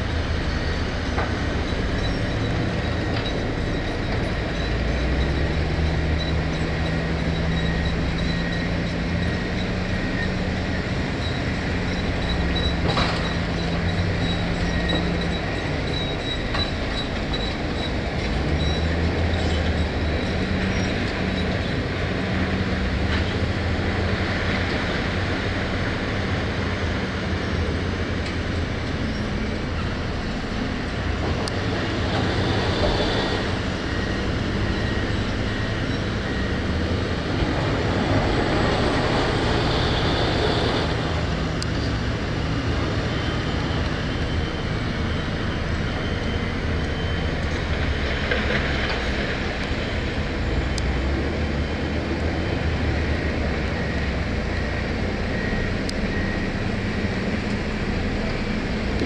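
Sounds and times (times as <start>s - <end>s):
diesel earthmoving machine engine: 0.0s - 59.0s.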